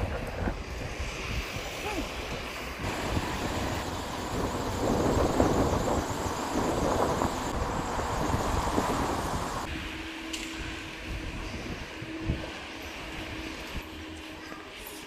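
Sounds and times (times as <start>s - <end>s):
wind buffeting microphone: 0.0s - 10.0s, 10.6s - 14.0s.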